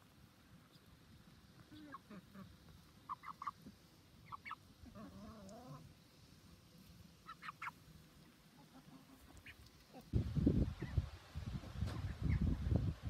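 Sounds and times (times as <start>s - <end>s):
hen clucking: 1.6s - 5.9s, 7.2s - 10.2s.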